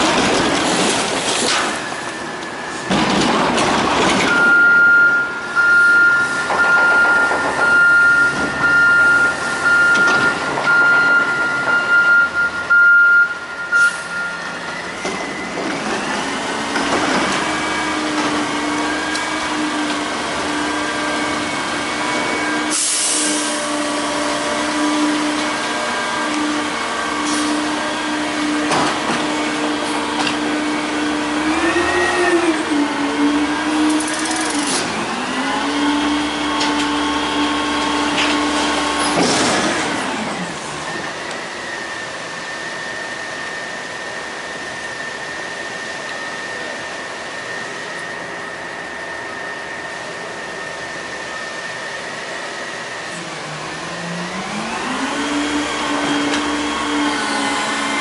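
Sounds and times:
garbage truck engine revving: 0:14.5 - 0:42.4, 0:47.4 - 0:58.0.

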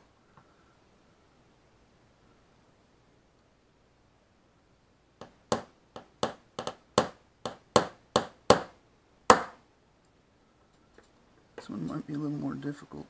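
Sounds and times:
hammer tapping metal punch: 0:05.2 - 0:09.6.

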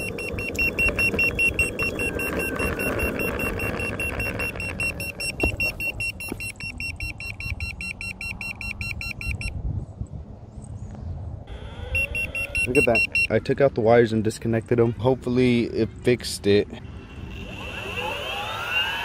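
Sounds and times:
electric longboard beeping rapidly: 0:00.0 - 0:09.5, 0:11.5 - 0:13.4, 0:16.9 - 0:19.0
low wind rumble: 0:00.0 - 0:19.0.

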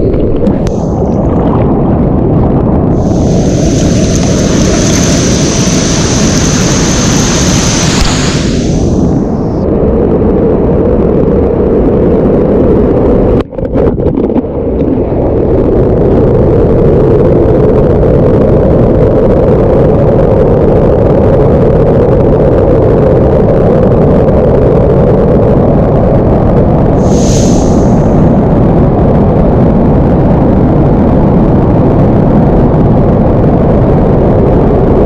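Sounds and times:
waterfall roaring: 0:03.0 - 0:09.2.

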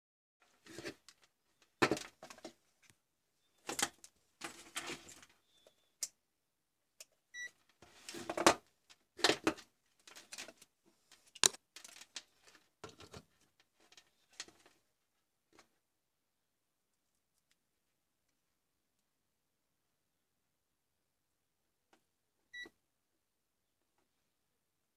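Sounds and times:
clicks and knocks of plastic items: 0:00.4 - 0:03.0, 0:03.6 - 0:06.1, 0:07.0 - 0:14.9
plastic cable rustling and dragging: 0:00.4 - 0:05.8, 0:07.6 - 0:14.9.

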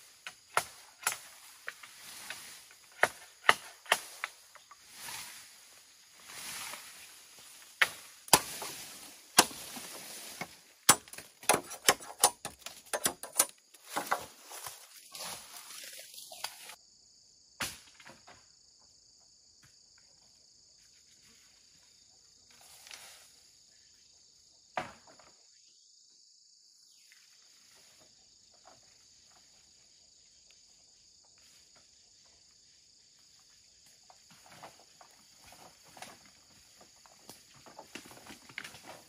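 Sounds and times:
insects buzzing: 0:00.0 - 0:17.6, 0:18.4 - 0:39.0
vegetation rustling: 0:00.8 - 0:16.8.

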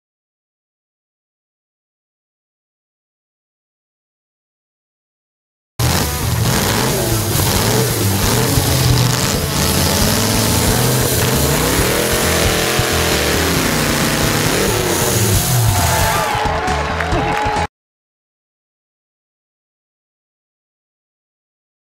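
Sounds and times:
saw cutting through log: 0:05.8 - 0:16.2.

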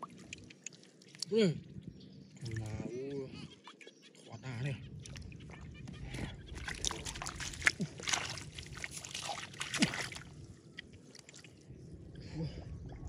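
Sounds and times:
hands splashing in muddy water: 0:06.5 - 0:10.4.

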